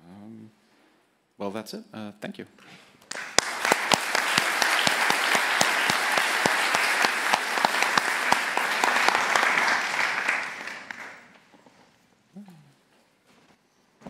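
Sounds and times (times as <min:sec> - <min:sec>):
audience applauding: 0:03.1 - 0:11.4.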